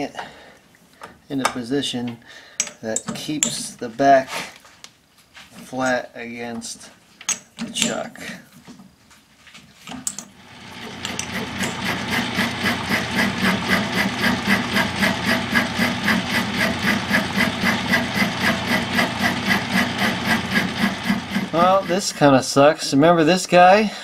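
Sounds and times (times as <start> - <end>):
metal lathe running: 10.3 - 22.3.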